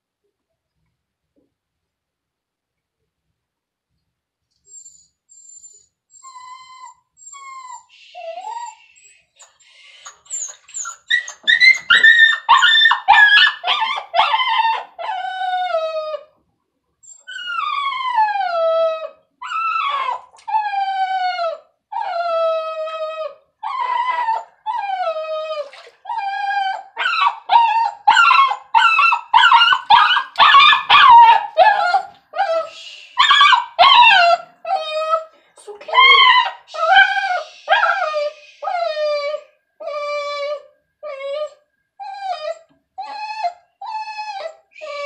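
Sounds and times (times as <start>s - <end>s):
small dog yelping and howling: 10.3s - 16.3s, 17.1s - 35.3s, 35.9s - 45.0s.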